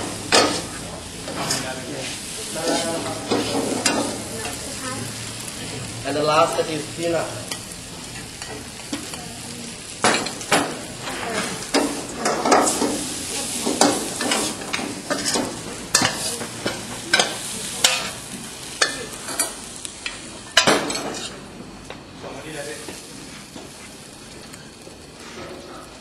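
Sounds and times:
frying sizzle: 0.0 - 26.0
spatula scraping a wok: 0.1 - 5.4, 10.1 - 19.6, 20.9 - 21.5.

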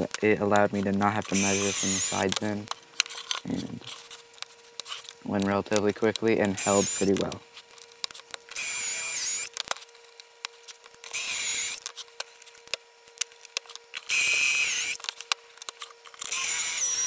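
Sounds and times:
cordless drill boring into plywood: 0.8 - 2.6, 6.5 - 7.4, 8.5 - 9.6, 11.1 - 11.9, 14.0 - 15.1, 16.2 - 17.0.

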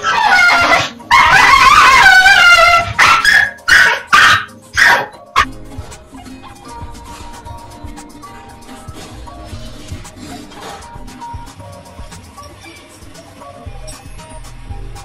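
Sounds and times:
dog whining howl: 0.0 - 4.2
dog barking: 0.0 - 5.5
background music: 0.0 - 15.0.

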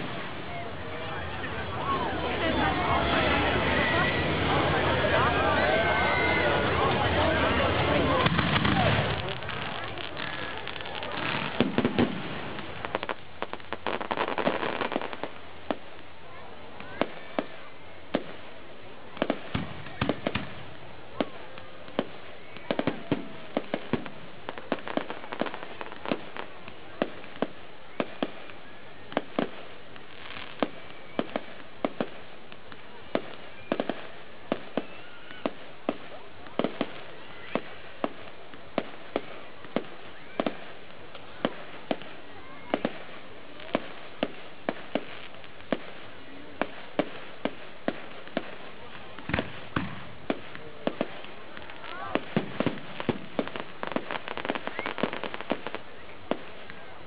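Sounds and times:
firework shells bursting: 49.2 - 56.5.

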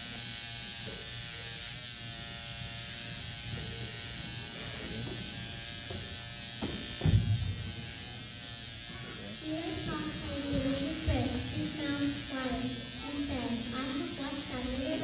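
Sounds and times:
electrical buzz and hum: 0.0 - 15.0.

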